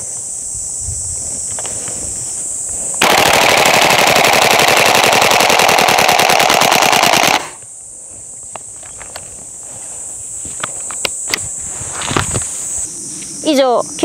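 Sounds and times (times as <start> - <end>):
airsoft rifle full-auto burst: 3.0 - 7.6.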